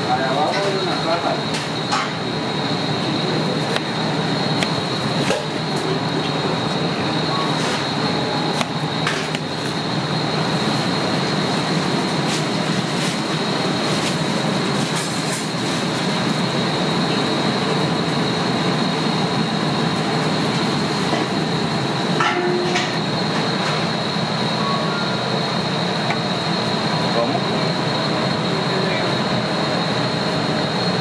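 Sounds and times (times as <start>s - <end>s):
high-pitched whine: 0.0s - 31.0s
rushing machine noise: 0.0s - 31.0s.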